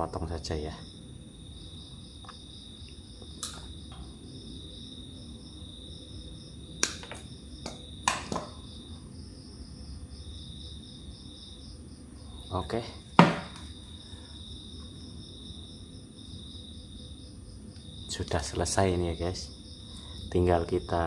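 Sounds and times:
insects chirping: 0.0 - 21.0
sharp clicks from handling wires: 3.4 - 4.1.

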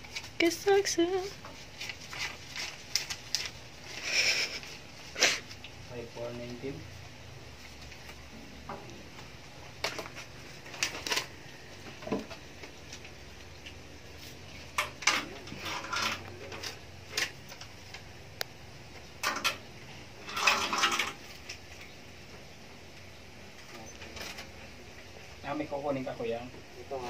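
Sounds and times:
paper money being counted: 0.0 - 5.6.

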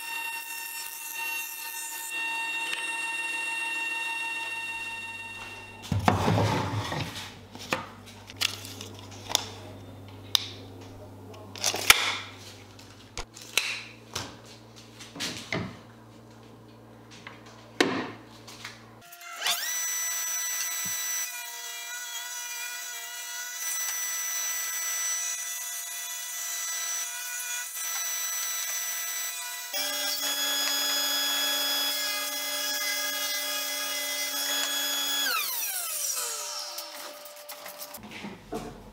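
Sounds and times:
table saw cutting wood: 0.0 - 7.0, 19.0 - 38.0.

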